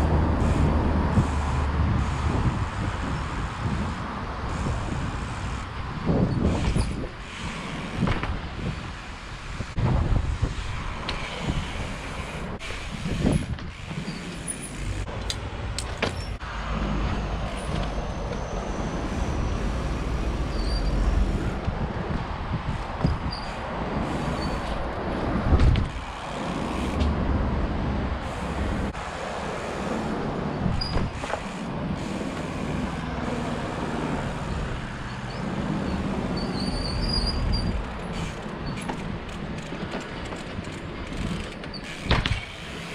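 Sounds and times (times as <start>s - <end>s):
wind on microphone: 0.0s - 13.9s, 16.9s - 29.0s
bike tyre noise: 0.0s - 42.9s
road traffic rumble: 0.0s - 42.9s.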